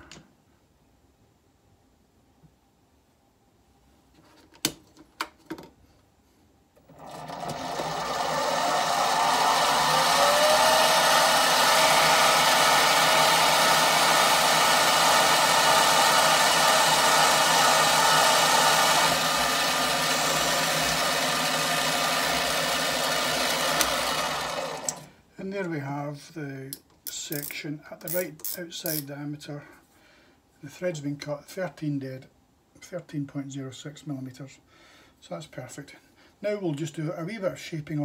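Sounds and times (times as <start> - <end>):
bench lathe whining: 6.9 - 25.1.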